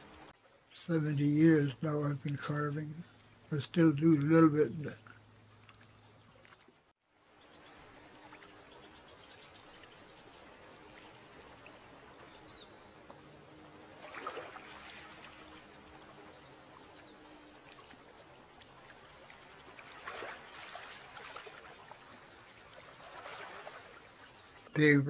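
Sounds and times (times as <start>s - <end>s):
waves lapping on rocky shore: 7.4s - 24.6s.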